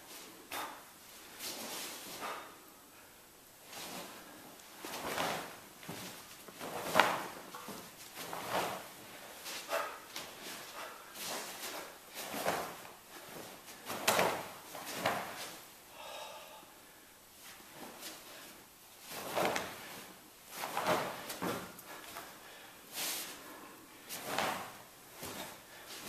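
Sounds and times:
feet sliding on mat: 3.6 - 15.6, 17.4 - 26.0.

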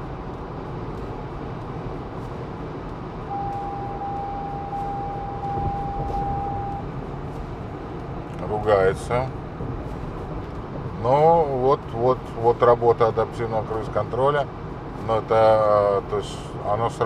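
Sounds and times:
road and drivetrain noise: 0.0 - 17.0
high warning tone: 3.3 - 6.9, 8.5 - 9.1.

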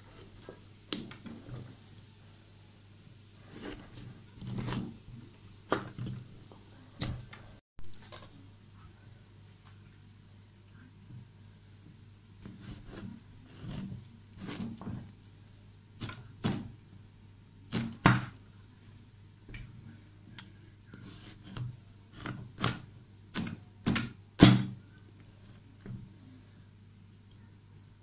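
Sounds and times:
knife cracking pumpkin rind: 21.5 - 24.7.

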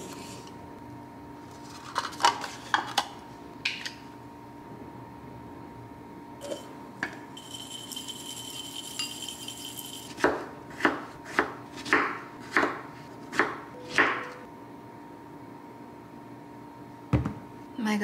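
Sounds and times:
knife knocking on cutting board: 17.1 - 17.4.

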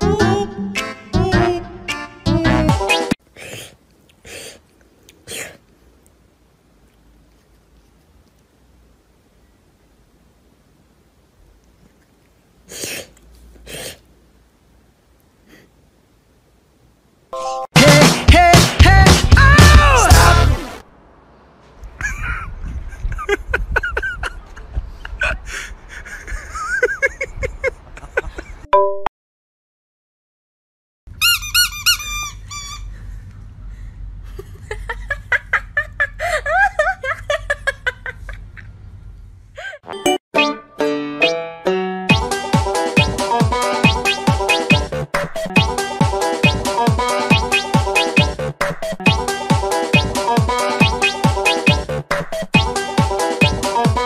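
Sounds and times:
loud music: 0.0 - 3.2, 17.7 - 20.8, 40.4 - 54.0
high squeaks: 31.2 - 32.9.

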